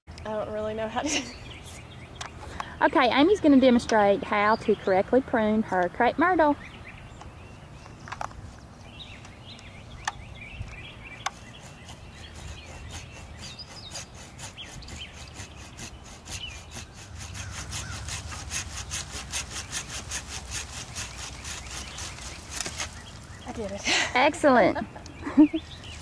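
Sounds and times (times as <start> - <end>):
handsaw strokes: 11.1 - 23.5.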